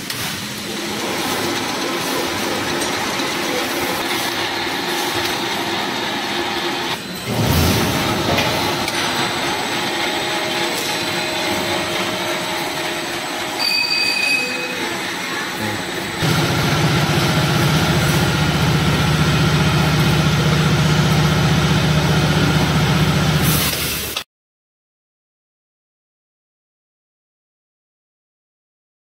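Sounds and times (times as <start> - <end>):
welding machinery running: 0.0 - 24.2
high machine whine: 0.6 - 23.6
low machine hum: 14.5 - 23.5.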